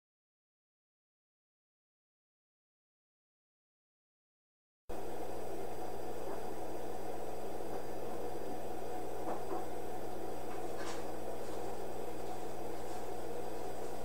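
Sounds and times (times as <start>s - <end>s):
mechanical hum with hiss: 4.9s - 14.0s.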